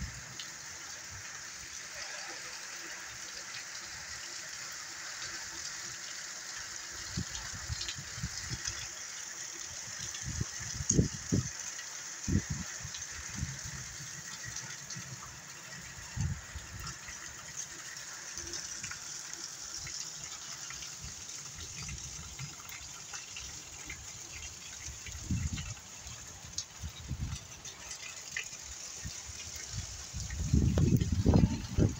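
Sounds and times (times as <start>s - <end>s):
heavy rain pouring: 6.8s - 31.9s
wind gusting on microphone: 12.3s - 13.8s, 16.1s - 16.9s, 25.0s - 25.8s, 29.8s - 31.9s.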